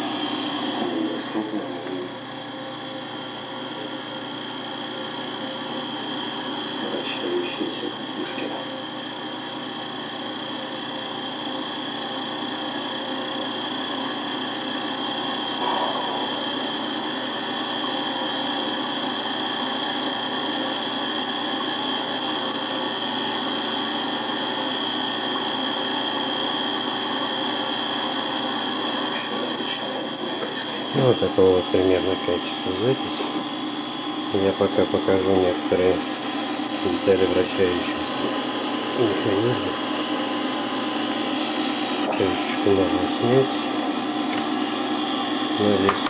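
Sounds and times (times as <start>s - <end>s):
thin high whine: 0.0s - 8.9s, 13.3s - 46.0s
tape recorder mechanical hum: 0.0s - 46.0s.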